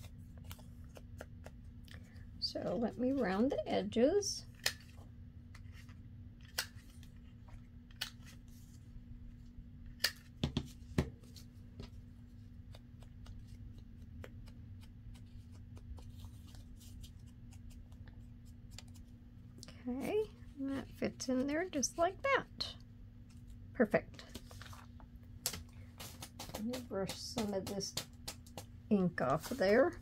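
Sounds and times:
paper handling: 0.0s - 2.2s, 10.0s - 19.2s, 24.2s - 30.0s.

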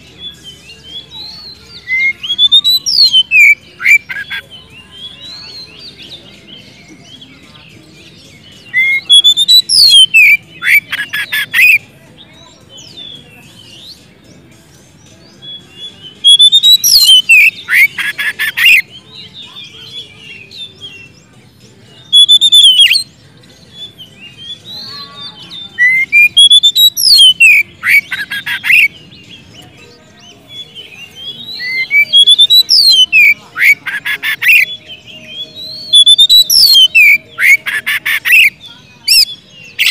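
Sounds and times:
soft bird twittering: 0.0s - 39.9s
bird singing whistles and rattles: 25.8s - 28.8s.

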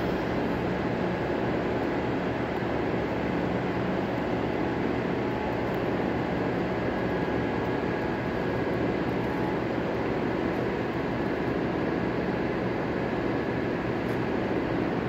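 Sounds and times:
factory hall rumble: 0.0s - 3.4s.

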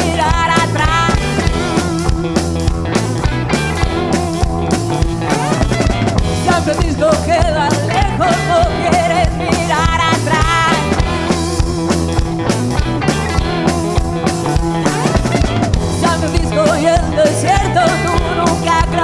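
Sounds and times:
woman singing into a microphone: 0.0s - 2.0s, 6.4s - 11.2s, 15.9s - 19.0s
drum kit beat: 0.0s - 19.0s
electric bass: 0.0s - 19.0s
electric guitars: 0.0s - 19.0s.

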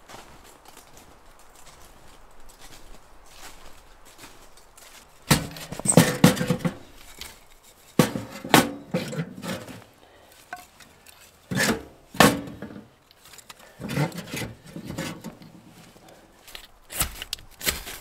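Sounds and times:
firewood clunking in metal stove: 5.3s - 6.9s, 8.0s - 9.8s, 11.5s - 12.9s, 13.8s - 15.5s.

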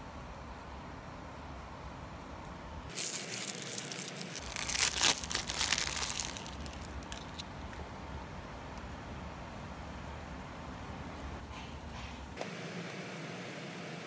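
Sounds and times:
plastic wrapper crinkling and tearing: 2.9s - 7.5s.

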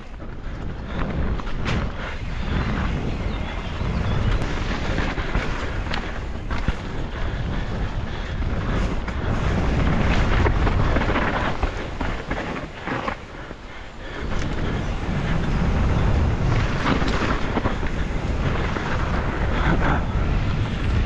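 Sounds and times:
bike knocks and rattles: 0.0s - 2.6s, 4.4s - 7.1s
wind buffeting microphone: 0.0s - 21.0s
tyres rolling over dirt: 8.4s - 21.0s.

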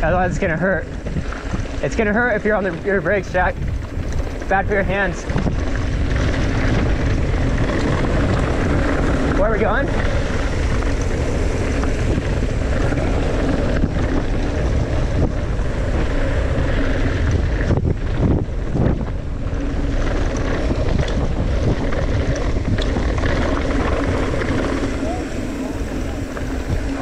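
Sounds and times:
bike rattling over stones: 0.0s - 27.0s
tyres rolling over gravel: 0.0s - 27.0s
wind buffeting microphone: 0.0s - 27.0s.

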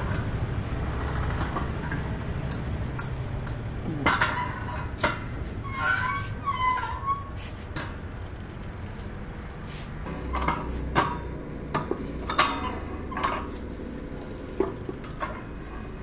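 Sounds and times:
metal clanks from pipe bender: 3.0s - 6.2s, 10.0s - 15.8s.

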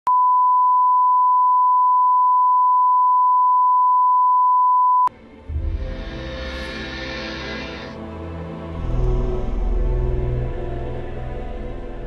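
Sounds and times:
music: 5.1s - 12.0s
low rumble: 5.4s - 11.9s
steady reference tone: 5.6s - 8.1s.

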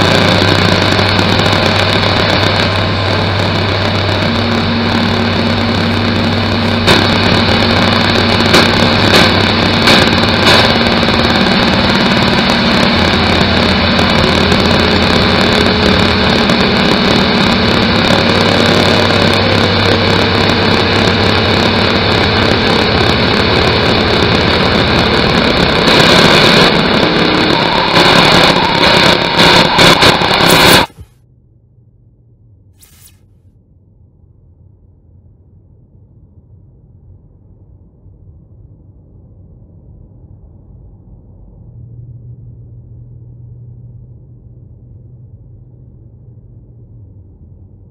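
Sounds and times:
thick wash of noise: 0.0s - 31.2s
steady hum tones: 0.0s - 47.9s.

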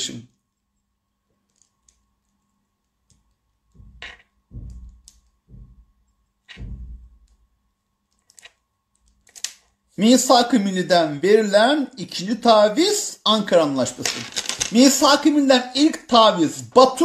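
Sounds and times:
low thumps on phone microphone: 3.7s - 7.3s.

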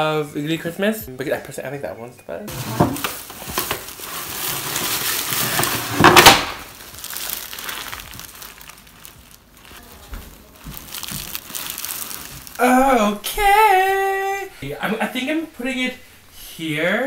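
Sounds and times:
plastic bag crinkling: 2.5s - 13.2s.

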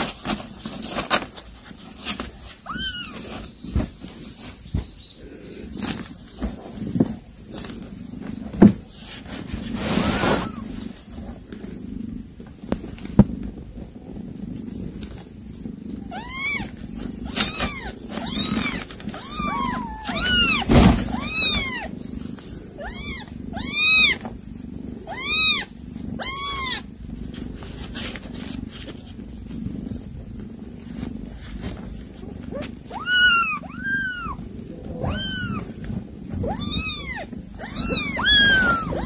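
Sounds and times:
low steady purr: 0.0s - 39.0s
kittens mewing: 2.0s - 6.5s, 9.8s - 10.9s, 15.6s - 28.6s, 30.9s - 39.0s.

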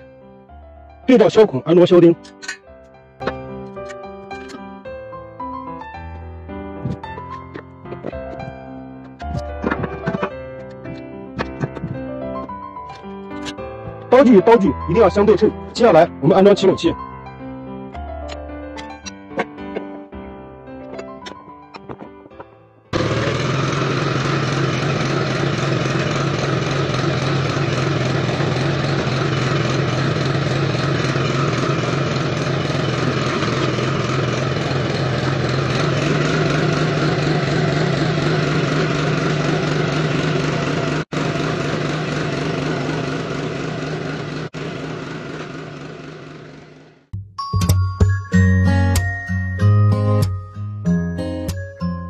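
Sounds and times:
power tiller engine running: 9.2s - 10.3s, 23.0s - 47.1s
tiller cutting soil: 23.0s - 47.0s.

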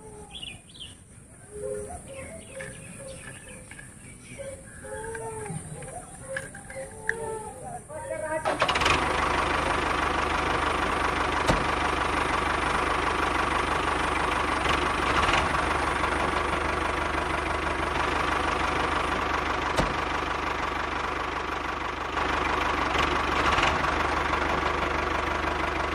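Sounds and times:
sharp clicks: 5.0s - 7.3s
engine idling with knocking chug: 8.0s - 25.9s.

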